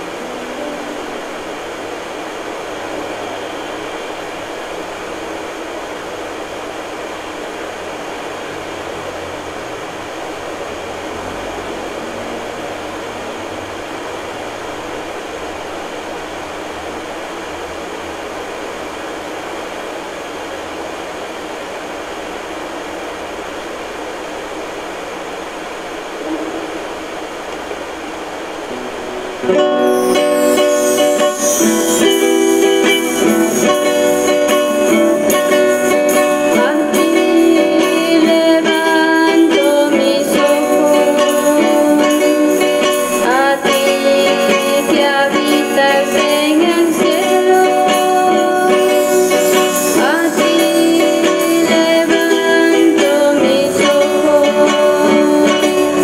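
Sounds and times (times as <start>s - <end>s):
plucked-string music: 0.0s - 5.1s, 26.2s - 56.0s
steady background hiss: 0.0s - 56.0s.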